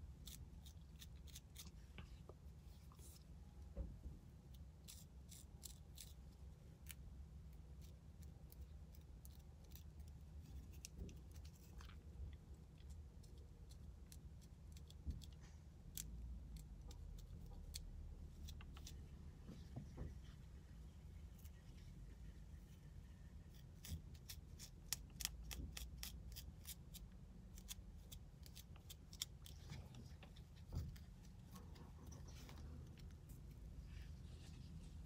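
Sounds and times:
low steady hum: 0.0 - 35.0.

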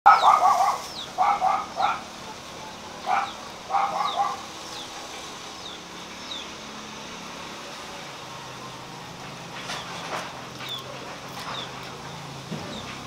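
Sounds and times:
bird chirping: 0.1 - 2.0, 2.6 - 6.6
animal calls: 0.1 - 4.5.

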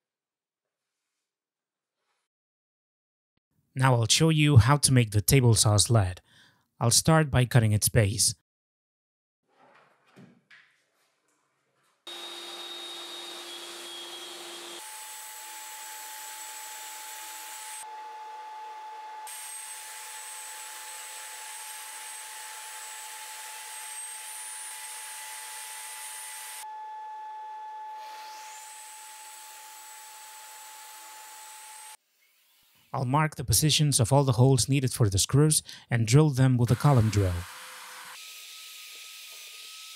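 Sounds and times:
table saw motor whine: 12.1 - 32.9, 36.7 - 39.9.

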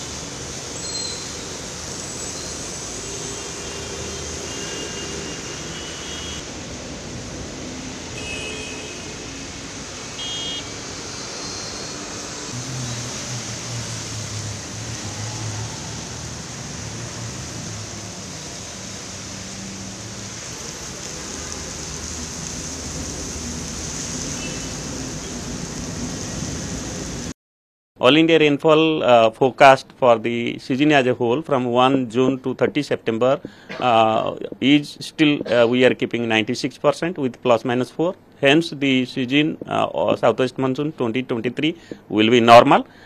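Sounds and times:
heavy rain hiss: 0.0 - 27.3
traffic on wet road: 0.0 - 27.3.

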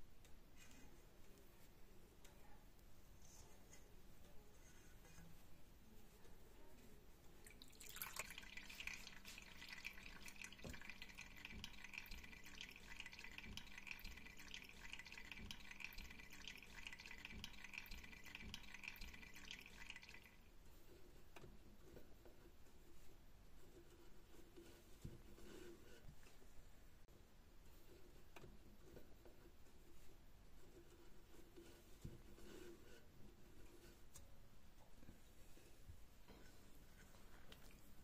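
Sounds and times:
liquid dripping into a metal pot: 7.5 - 20.4.

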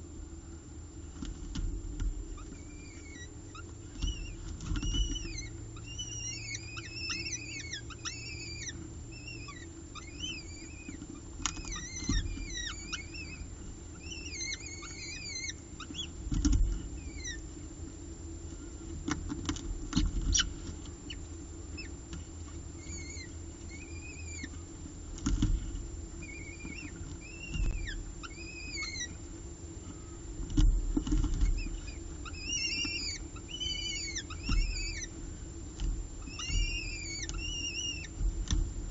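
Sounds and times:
steady low hum: 0.0 - 38.9
falcon chicks cheeping: 2.3 - 17.5, 20.0 - 22.0, 22.6 - 25.3, 26.2 - 38.9
dull thumps in nest box: 38.0 - 38.9.

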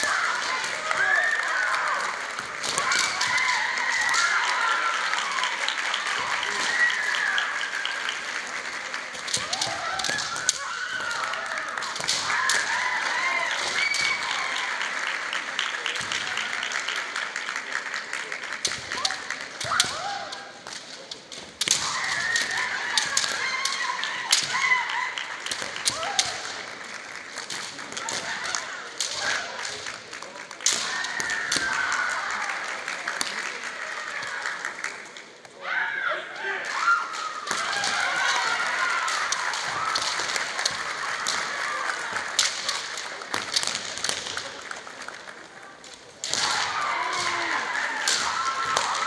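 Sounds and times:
bamboo swords clacking: 0.0 - 5.5, 9.0 - 14.6, 18.5 - 32.0, 36.7 - 44.7, 45.3 - 49.0
people shouting high-pitched: 0.0 - 8.0, 9.2 - 14.9, 18.9 - 20.6, 21.6 - 26.5, 35.6 - 43.0, 46.2 - 49.0.

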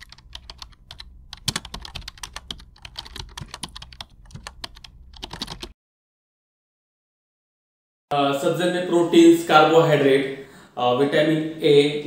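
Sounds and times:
low hum: 0.0 - 5.4.

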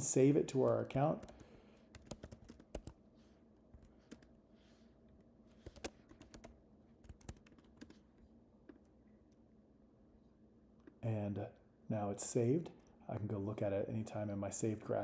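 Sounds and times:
typing on computer keyboard: 0.5 - 3.0, 3.8 - 4.3, 5.6 - 8.0.

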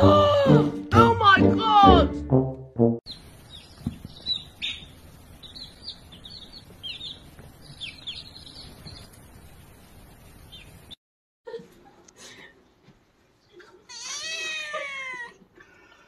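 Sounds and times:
baby chicks peeping: 3.1 - 9.2, 10.5 - 11.0.

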